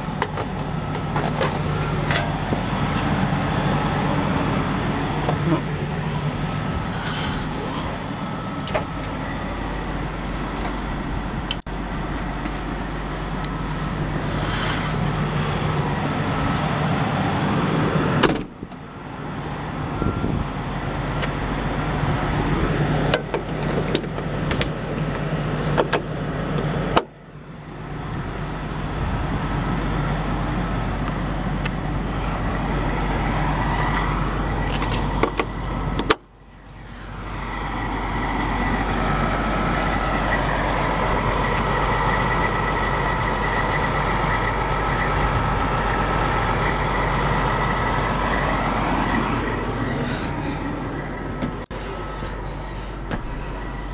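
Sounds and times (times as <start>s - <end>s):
diesel engine idling: 0.0s - 53.9s.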